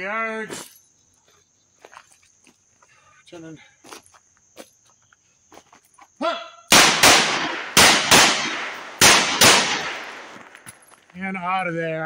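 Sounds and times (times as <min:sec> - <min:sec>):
handgun shots with echo: 0:06.7 - 0:10.6.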